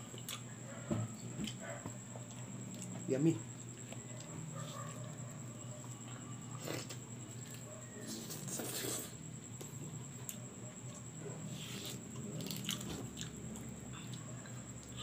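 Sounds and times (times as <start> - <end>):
person chewing food: 0.0 - 0.5, 10.2 - 15.0
faint electrical hum: 0.0 - 15.0.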